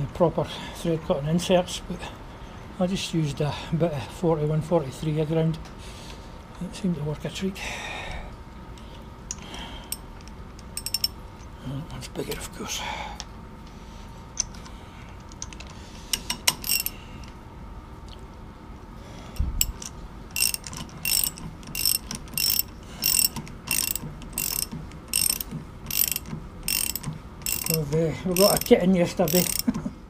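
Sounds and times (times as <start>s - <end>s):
socket ratchet clicking: 9.3s - 11.2s, 14.4s - 17.0s, 19.4s - 29.8s.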